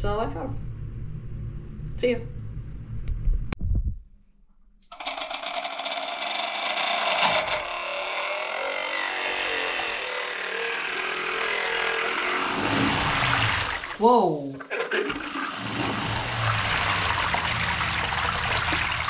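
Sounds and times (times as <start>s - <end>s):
small pump motor whining: 5.7s - 14.0s
water gushing into sink: 10.7s - 19.0s.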